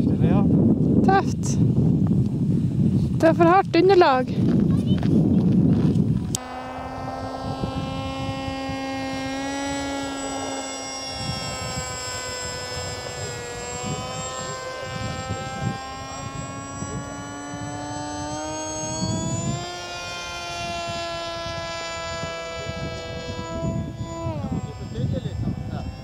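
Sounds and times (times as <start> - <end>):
model airplane motor whine: 5.2 - 26.0.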